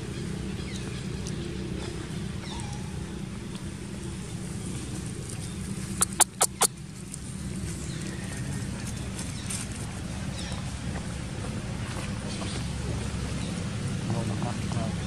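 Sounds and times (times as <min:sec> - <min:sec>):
low engine rumble: 0:00.0 - 0:15.0
sharp clicks: 0:06.0 - 0:06.7.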